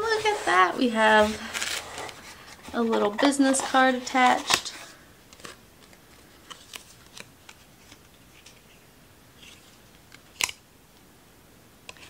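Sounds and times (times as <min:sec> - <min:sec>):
soft clicks of paper packaging: 0:01.4 - 0:08.8.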